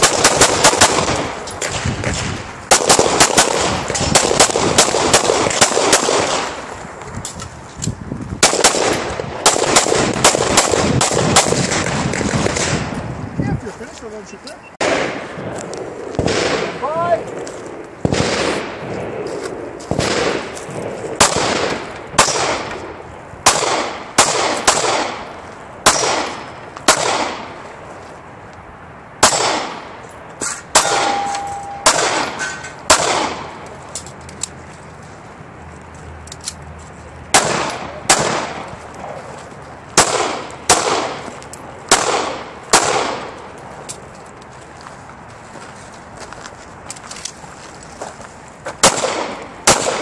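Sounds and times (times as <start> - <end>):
pistol shots echoing: 0.0 - 1.9, 2.7 - 6.6, 8.4 - 12.8, 16.0 - 17.0, 19.9 - 22.8, 23.4 - 27.6, 29.2 - 29.9, 30.7 - 33.6, 37.3 - 38.7, 40.0 - 41.3, 41.9 - 43.4, 48.8 - 50.0.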